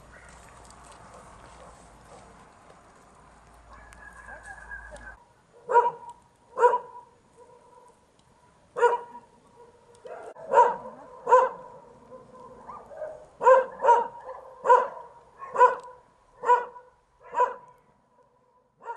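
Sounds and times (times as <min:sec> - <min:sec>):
dog barking: 0:03.7 - 0:08.0, 0:08.8 - 0:18.9.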